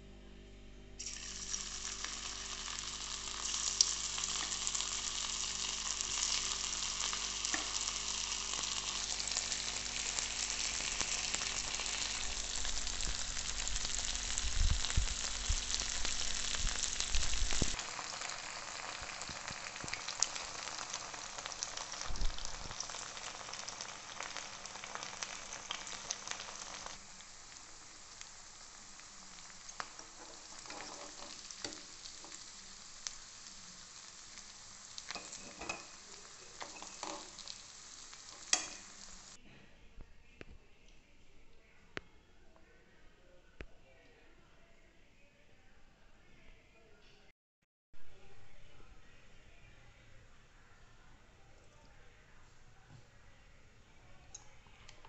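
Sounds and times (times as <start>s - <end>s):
chicken sizzling in oil: 1.0s - 39.4s
metal spatula scraping pan: 30.1s - 31.8s.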